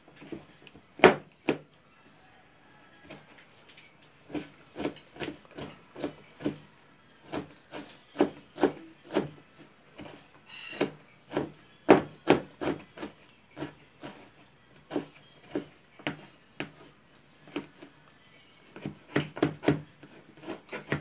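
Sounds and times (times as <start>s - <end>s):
knife chopping on plastic board: 1.0s - 1.7s, 4.3s - 9.4s, 10.0s - 14.3s, 14.9s - 16.9s, 18.7s - 21.0s.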